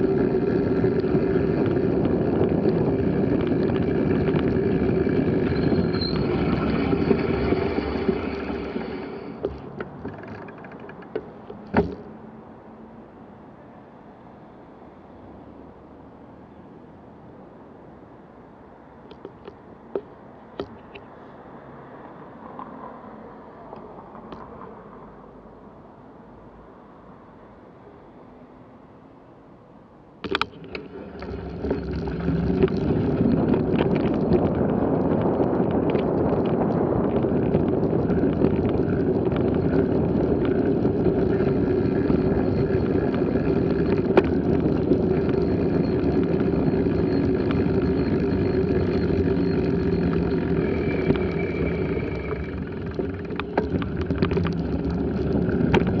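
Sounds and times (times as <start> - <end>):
wind rumble on microphone: 0.0 - 10.6, 30.2 - 56.0
bicycle tyres rolling: 0.0 - 12.2, 30.2 - 56.0.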